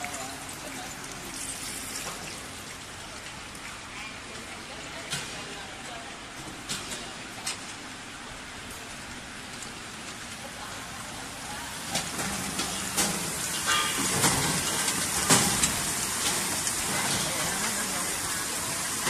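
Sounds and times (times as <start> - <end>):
chips hissing and crackling in oil: 0.0 - 4.5, 10.3 - 19.0
frying machine running: 0.0 - 19.0.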